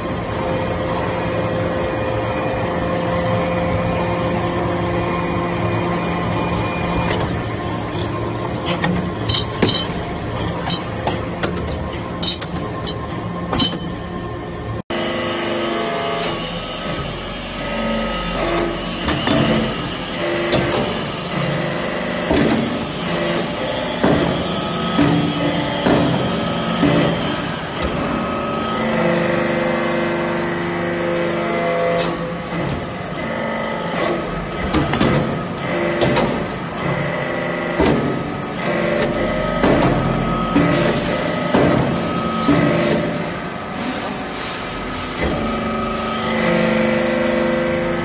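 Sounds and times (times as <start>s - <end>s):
hydraulic press droning: 0.0s - 48.0s
metallic clicks and clinks: 9.2s - 10.9s, 11.5s - 13.9s.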